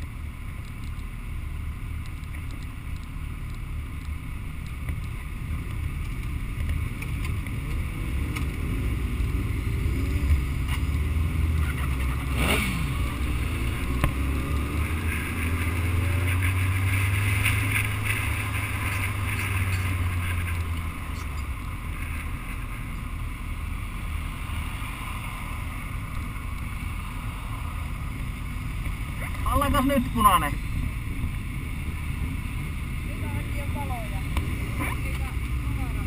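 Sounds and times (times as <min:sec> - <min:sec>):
motorcycle engine accelerating: 0:05.8 - 0:22.7.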